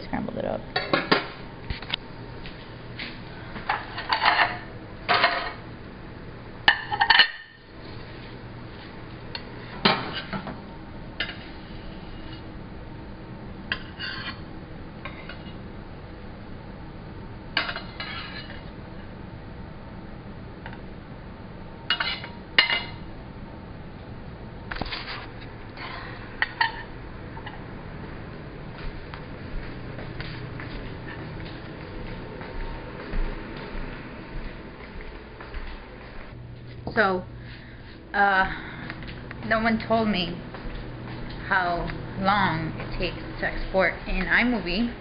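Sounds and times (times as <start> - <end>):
metal spatula scraping a frying pan: 13.8 - 14.4.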